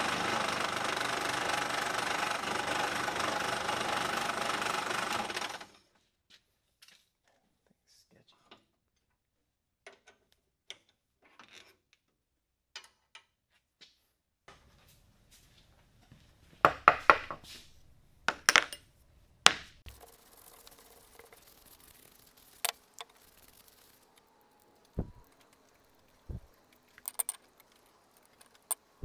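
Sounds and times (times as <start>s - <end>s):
screwdriver at work: 19.9s - 29.0s
metal parts clinking on wood: 26.4s - 28.9s.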